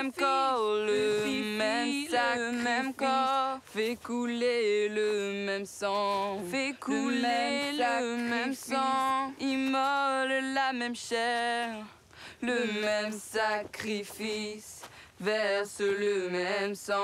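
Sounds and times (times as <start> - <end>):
woman singing with vibrato: 0.0 - 17.0.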